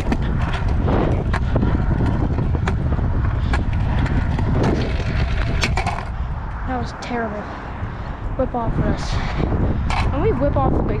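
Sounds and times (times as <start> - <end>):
scooter clacks: 0.0 - 6.2
scooter wheels rolling on concrete: 0.0 - 11.0.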